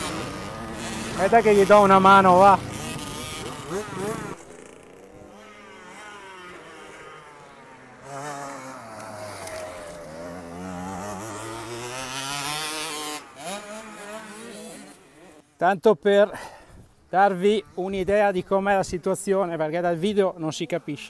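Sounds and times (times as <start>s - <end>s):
motocross bike engine revving: 0.0s - 15.6s.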